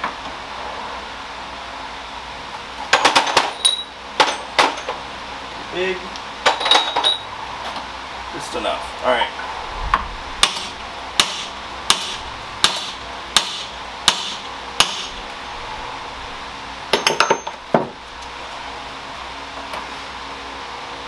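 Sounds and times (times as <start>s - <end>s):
hammer striking metal: 10.4s - 15.2s, 16.9s - 17.9s.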